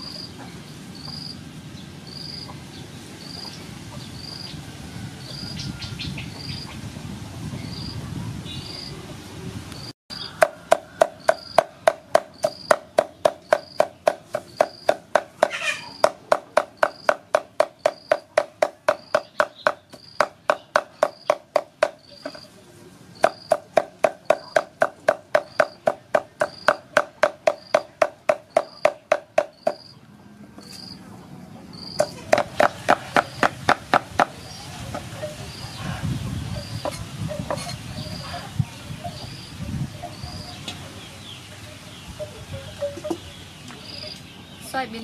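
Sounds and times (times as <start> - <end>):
cricket chirping: 1.0 - 1.4, 2.1 - 2.5, 10.6 - 18.3, 18.9 - 20.4, 21.0 - 22.6, 23.2 - 24.7, 25.4 - 26.9, 27.5 - 30.0.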